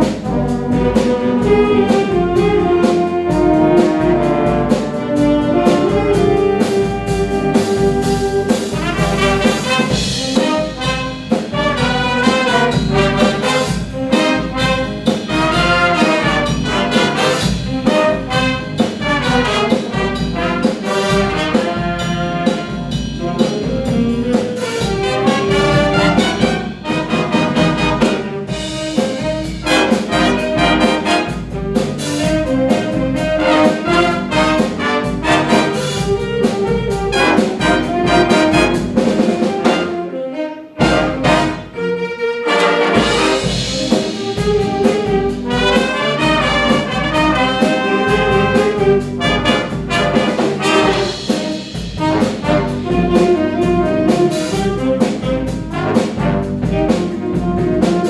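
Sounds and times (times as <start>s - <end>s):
steady drum beat: 0.0s - 41.8s, 42.5s - 58.0s
trombones: 0.0s - 58.0s
trumpets: 0.0s - 58.0s
saxophones: 0.4s - 58.0s.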